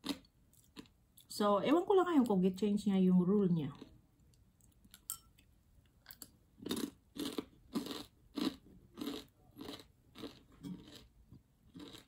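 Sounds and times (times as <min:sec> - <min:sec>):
crunchy chewing: 0:06.6 - 0:11.1, 0:11.7 - 0:12.0.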